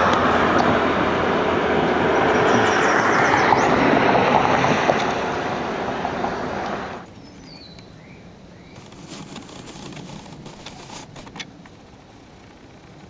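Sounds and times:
light clicks and rustles: 0:08.8 - 0:13.0.

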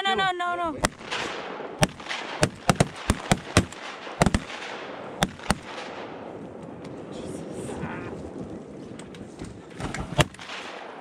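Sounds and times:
shotgun shots: 0:00.8 - 0:06.3, 0:10.0 - 0:11.0.

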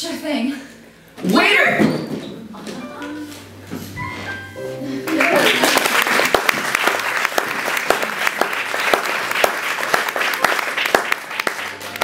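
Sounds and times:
audience applauding: 0:05.0 - 0:12.0.

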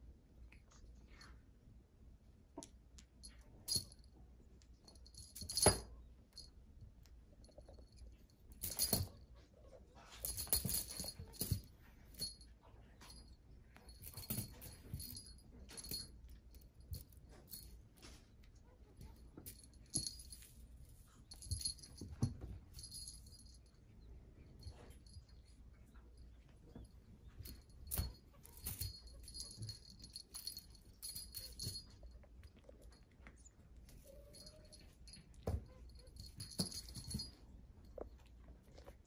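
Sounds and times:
small bell jingling: 0:03.2 - 0:04.1, 0:04.8 - 0:06.5, 0:07.4 - 0:09.3, 0:10.1 - 0:17.9, 0:19.0 - 0:33.1, 0:33.8 - 0:38.2.

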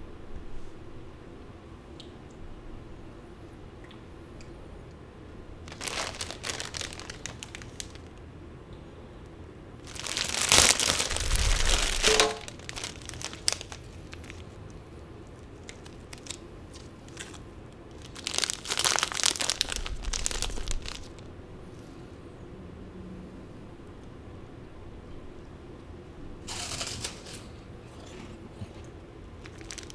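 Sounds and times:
plastic wrappers crinkling: 0:05.6 - 0:08.2, 0:09.8 - 0:21.3, 0:26.5 - 0:27.4, 0:29.4 - 0:29.9
wrapper tearing open: 0:05.7 - 0:08.2, 0:09.8 - 0:14.6, 0:15.4 - 0:21.3, 0:29.4 - 0:29.9.

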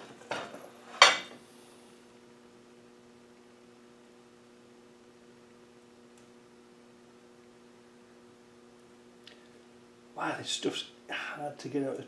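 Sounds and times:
faint electrical hum: 0:00.0 - 0:12.0.

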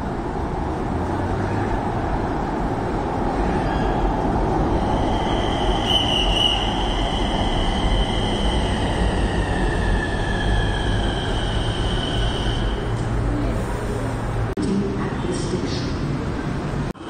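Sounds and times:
electric train slowing: 0:02.8 - 0:14.5.

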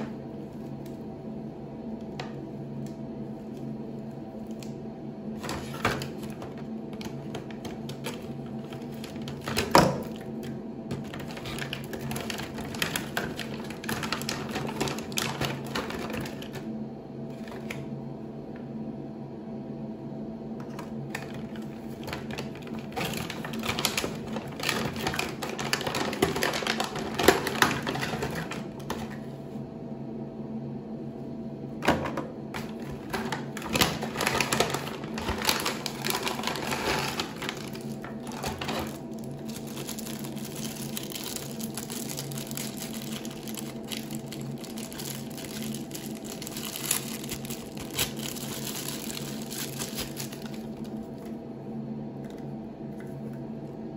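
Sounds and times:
steady low hum: 0:00.0 - 0:53.9
foil and plastic crinkling: 0:05.4 - 0:16.7, 0:17.3 - 0:17.9, 0:20.6 - 0:29.2, 0:32.5 - 0:51.3.

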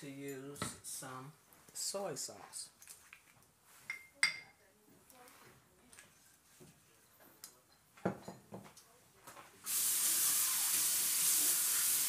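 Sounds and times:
tap water running with hiss: 0:09.7 - 0:12.0.

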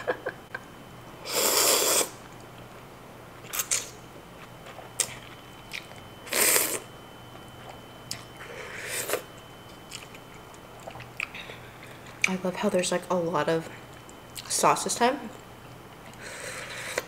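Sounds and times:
person slurping noodles: 0:01.2 - 0:02.2, 0:06.3 - 0:06.8
chewing and lip smacks: 0:04.4 - 0:06.1, 0:09.8 - 0:12.4.

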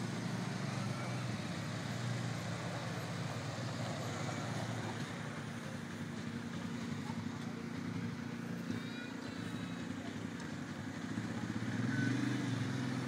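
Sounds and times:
tractor engine idling: 0:00.0 - 0:13.0.

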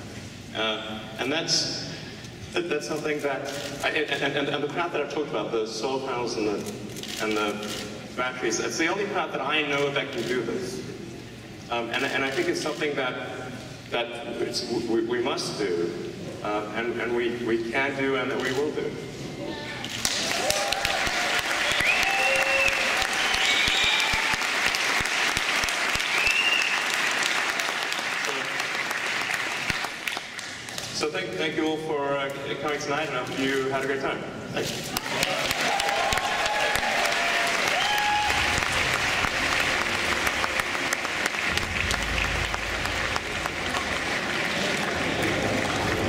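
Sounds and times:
audience cheering: 0:20.0 - 0:28.5, 0:35.0 - 0:46.0
audience applauding: 0:20.0 - 0:30.9, 0:35.0 - 0:46.0
high held whistles: 0:21.7 - 0:24.3, 0:26.0 - 0:27.0.

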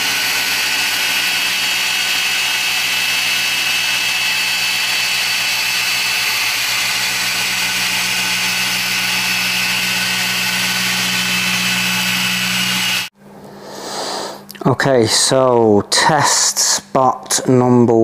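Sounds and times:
polisher whining: 0:00.0 - 0:13.1.

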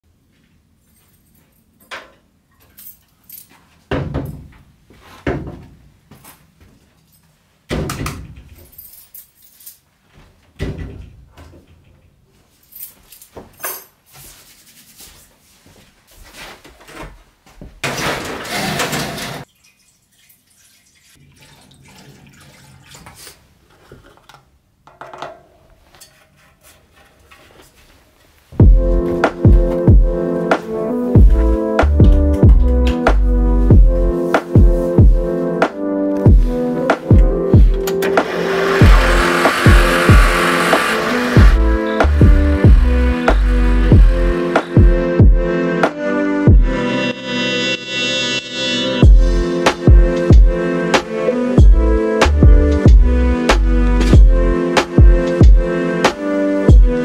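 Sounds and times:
dense rush of noise: 0:38.2 - 0:44.4.

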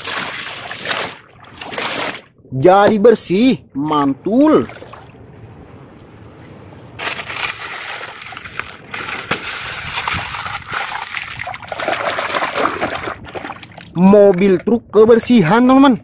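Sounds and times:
muddy water sloshing and splashing: 0:00.0 - 0:02.9, 0:03.8 - 0:15.0.

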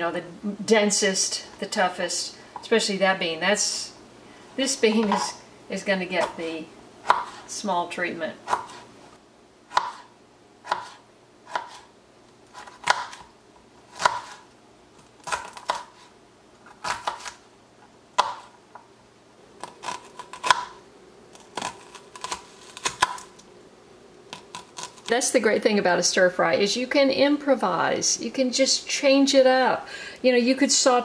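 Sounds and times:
knife slicing on plastic board: 0:10.7 - 0:11.8.

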